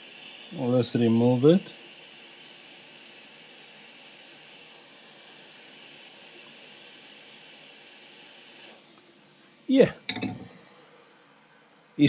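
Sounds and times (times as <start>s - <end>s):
hot air hissing: 0.0s - 12.0s.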